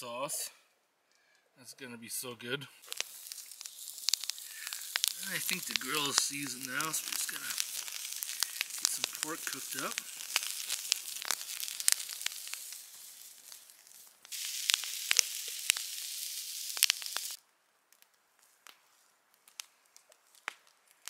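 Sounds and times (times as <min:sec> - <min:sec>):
meat sizzling on a grill: 0:02.8 - 0:17.4
fire popping and crackling: 0:02.8 - 0:21.0.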